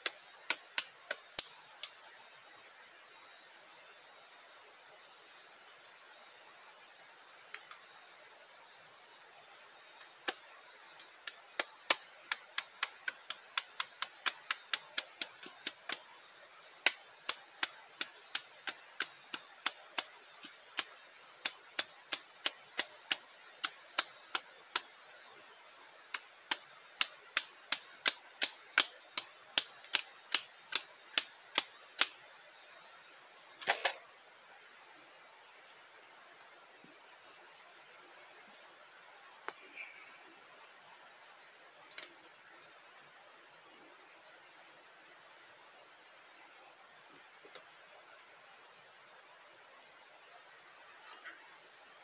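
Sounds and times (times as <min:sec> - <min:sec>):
faint insect whine: 0:00.0 - 0:52.0
machete chopping sapling: 0:11.2 - 0:16.1, 0:16.8 - 0:24.9, 0:26.1 - 0:32.2.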